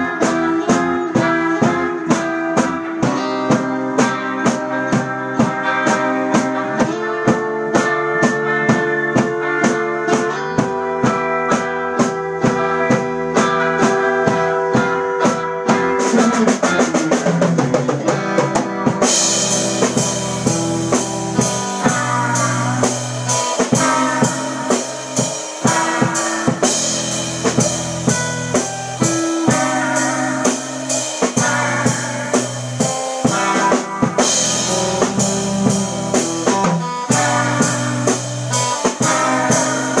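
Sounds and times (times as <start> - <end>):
drum kit steady beat: 0.0 - 40.0
electric guitars: 0.0 - 40.0
cymbals: 18.1 - 40.0.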